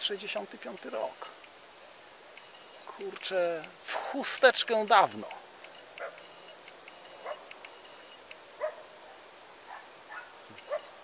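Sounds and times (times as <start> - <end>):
dog barking faintly: 7.2 - 7.5, 8.6 - 11.0.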